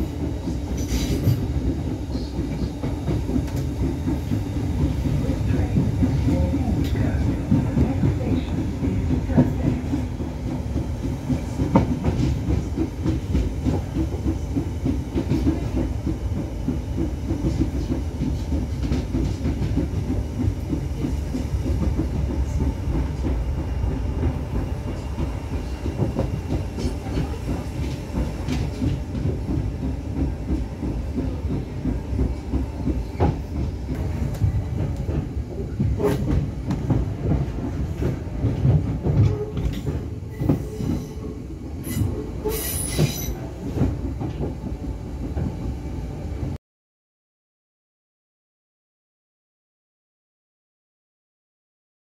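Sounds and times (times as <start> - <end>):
high squeal of train wheels: 0.0 - 2.8, 39.2 - 43.5
train rumbling inside carriage: 0.0 - 46.6.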